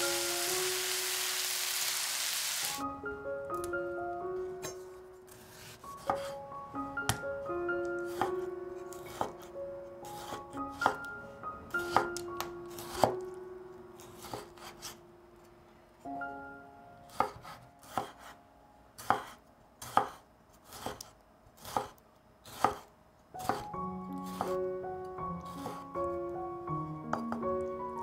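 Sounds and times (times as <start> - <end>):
soft background music: 0.0 - 1.4, 2.7 - 19.7, 22.6 - 28.0
knife chopping on cutting board: 5.5 - 6.4, 8.1 - 9.5, 10.1 - 11.1, 11.8 - 13.2, 14.0 - 15.0, 17.1 - 18.4, 19.0 - 23.7, 24.3 - 24.6.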